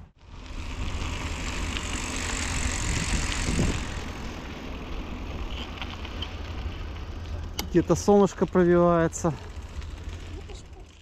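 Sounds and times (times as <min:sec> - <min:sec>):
bike rolling over dirt: 0:00.1 - 0:11.0
wind on microphone: 0:02.6 - 0:04.1.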